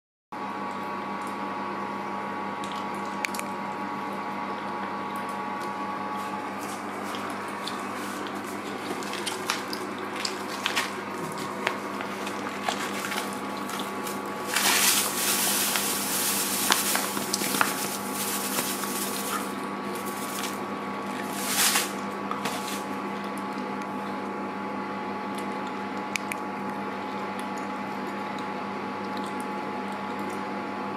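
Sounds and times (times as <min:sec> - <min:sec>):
steady hum: 0:00.4 - 0:27.2
sugar pouring into a steel pot: 0:14.4 - 0:20.6.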